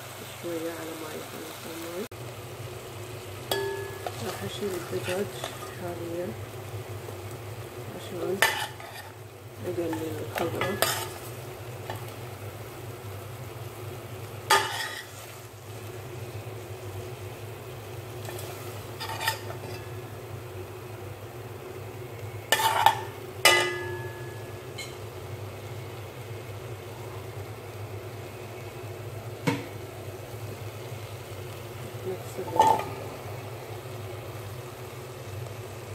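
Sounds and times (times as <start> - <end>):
oil sizzling: 0.0 - 35.9
metal spoon clanking against pot: 3.5 - 4.4, 22.6 - 24.1, 32.4 - 32.9.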